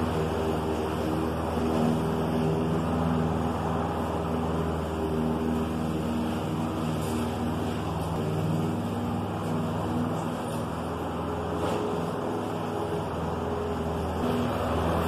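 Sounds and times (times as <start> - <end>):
lawn mower engine running: 0.0 - 15.0.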